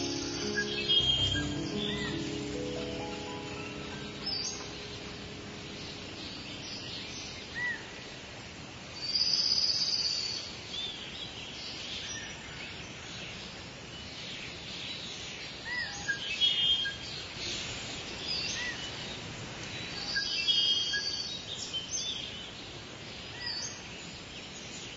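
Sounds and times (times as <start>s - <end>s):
ambient hiss: 0.0s - 12.1s, 16.2s - 21.6s.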